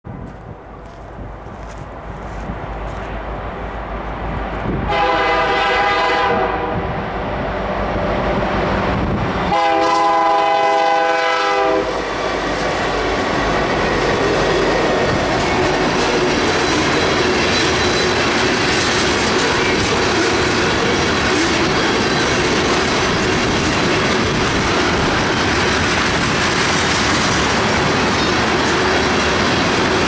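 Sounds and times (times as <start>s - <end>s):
train rumble and wheel clatter: 0.0s - 30.0s
locomotive air horn: 4.9s - 6.9s, 9.5s - 12.0s.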